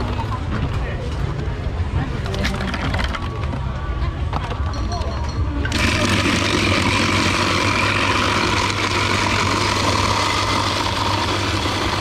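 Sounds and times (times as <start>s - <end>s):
ice shaver grinding ice: 5.7s - 12.0s.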